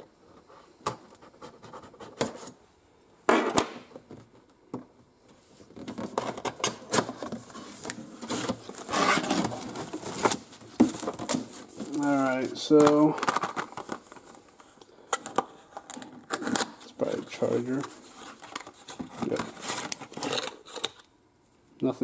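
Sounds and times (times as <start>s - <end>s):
cardboard scraping and rustling: 5.6s - 14.2s, 17.3s - 20.8s.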